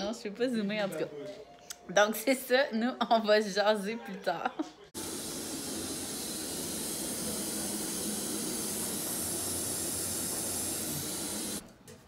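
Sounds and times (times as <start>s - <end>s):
water pouring from faucet into tub: 5.0s - 11.6s.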